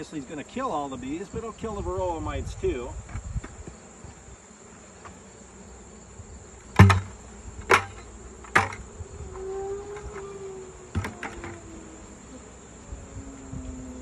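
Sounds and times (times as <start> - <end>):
bees buzzing: 0.0 - 14.0
bucket knocking on hive box: 6.7 - 8.8, 10.9 - 11.6.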